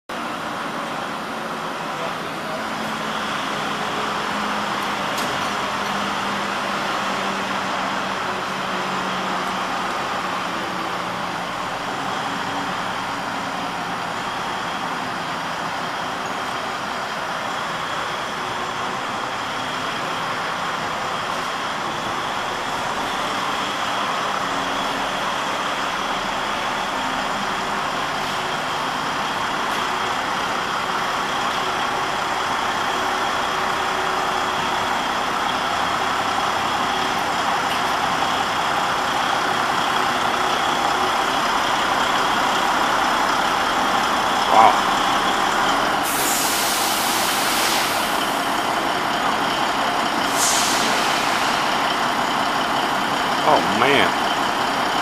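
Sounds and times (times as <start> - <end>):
diesel truck engine running: 0.1 - 55.0.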